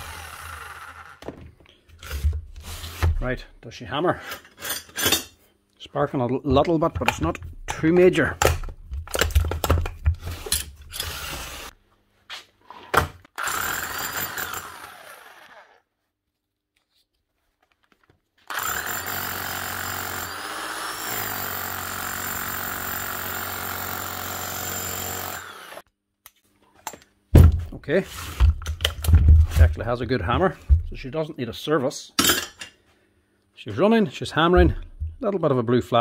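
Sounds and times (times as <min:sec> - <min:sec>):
rotary hammer running: 0:25.0 - 0:25.8.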